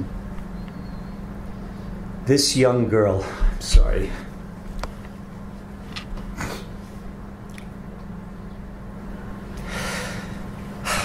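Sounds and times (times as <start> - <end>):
steady low hum: 0.0 - 11.0
man sniffing and breathing: 9.6 - 11.0.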